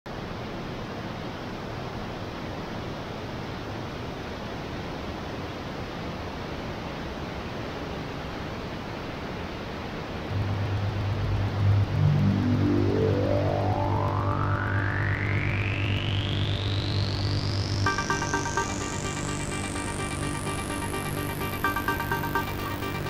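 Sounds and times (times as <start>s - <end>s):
rising synth tone: 10.3s - 23.0s
synthesizer bass note: 10.3s - 23.0s.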